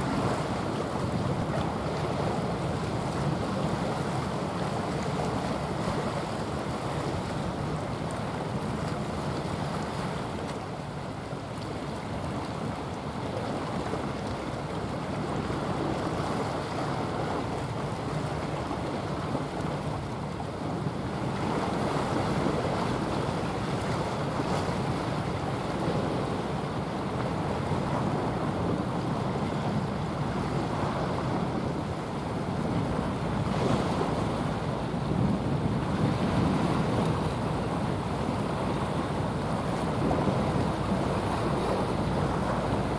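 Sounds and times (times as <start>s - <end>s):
ship low rumble: 0.0s - 42.9s
wind and sea rushing: 0.0s - 42.9s
wind buffeting microphone: 20.2s - 42.9s.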